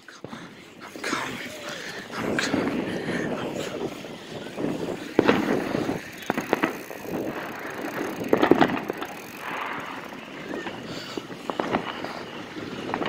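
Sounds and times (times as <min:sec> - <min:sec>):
bicycle tyres rolling: 0:00.0 - 0:13.0
wind on microphone: 0:00.0 - 0:13.0
sharp clicks: 0:05.2 - 0:10.8.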